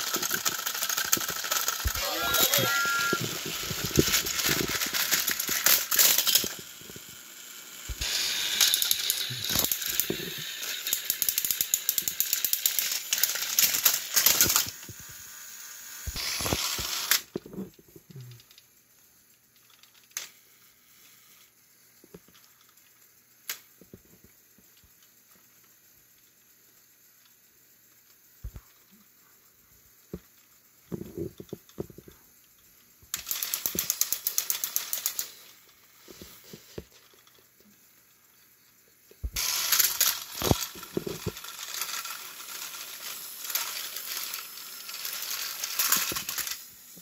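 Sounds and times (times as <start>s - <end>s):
toy train motors whirring: 0.0s - 47.0s.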